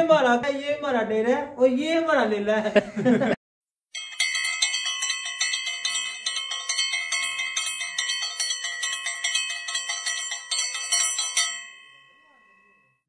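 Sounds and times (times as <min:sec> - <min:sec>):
bells ringing rapidly: 0:04.0 - 0:13.0.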